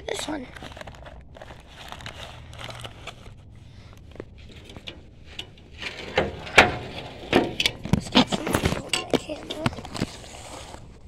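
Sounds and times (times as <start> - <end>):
cardboard box rustling and scraping: 0.3 - 3.4, 4.1 - 11.0
sharp clicks and knocks: 4.5 - 10.1.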